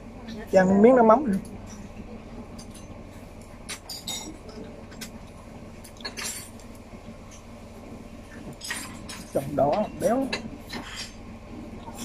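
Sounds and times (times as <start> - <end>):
low room hum: 0.0 - 12.0
cutlery clinking on a plate: 5.9 - 6.6.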